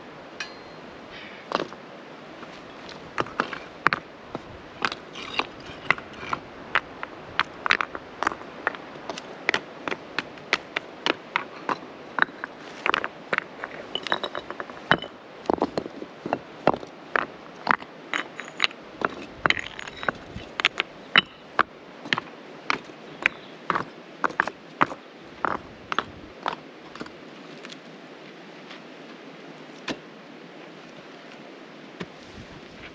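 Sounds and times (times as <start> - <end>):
stones clacking together: 2.4 - 27.8.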